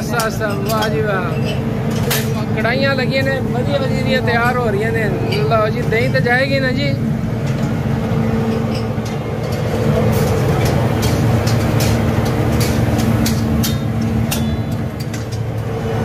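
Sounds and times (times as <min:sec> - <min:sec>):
metal clicks and clatter: 0:00.0 - 0:02.6, 0:07.4 - 0:15.8
steady low hum: 0:00.0 - 0:16.0.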